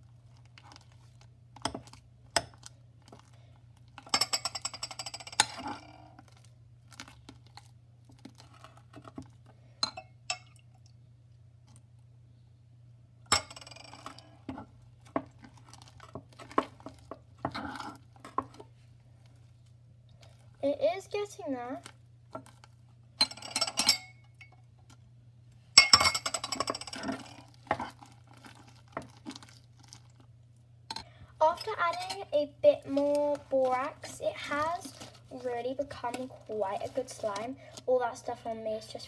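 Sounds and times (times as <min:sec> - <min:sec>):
spoon stirring slime: 0:00.0 - 0:10.8, 0:14.4 - 0:24.6, 0:30.9 - 0:39.0.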